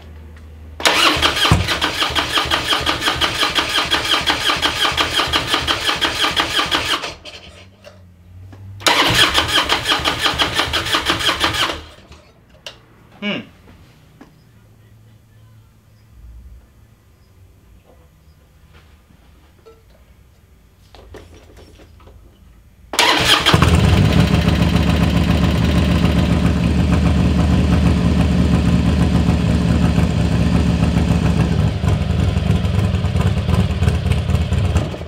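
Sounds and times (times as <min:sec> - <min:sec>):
motorcycle engine starting and idling: 0:00.8 - 0:08.1, 0:08.7 - 0:12.8, 0:22.9 - 0:35.0.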